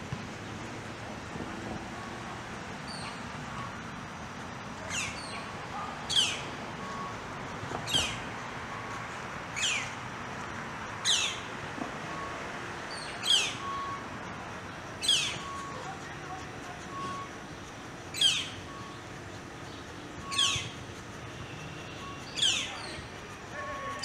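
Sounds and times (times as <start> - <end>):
nestlings calling: 2.9 - 3.7, 4.8 - 7.1, 7.8 - 10.0, 11.0 - 11.6, 12.9 - 24.0.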